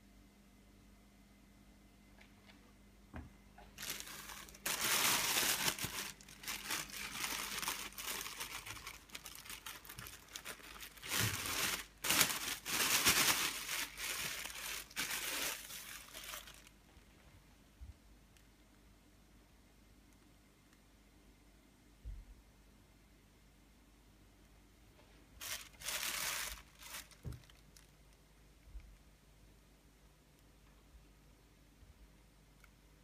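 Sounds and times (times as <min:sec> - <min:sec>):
crinkling and rustling: 0:03.6 - 0:17.3, 0:25.0 - 0:29.1.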